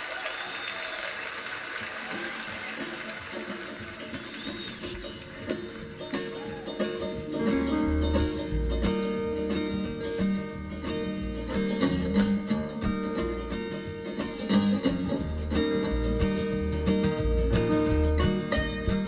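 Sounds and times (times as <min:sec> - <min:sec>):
acoustic guitar strumming: 0:02.8 - 0:19.0
banjo picking: 0:02.8 - 0:19.0
low bass notes: 0:07.1 - 0:19.0.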